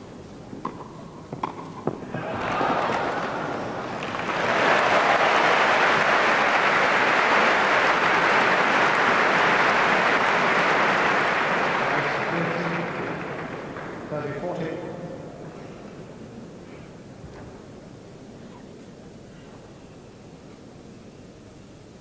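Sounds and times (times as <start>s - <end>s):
crowd applauding: 2.1s - 14.8s.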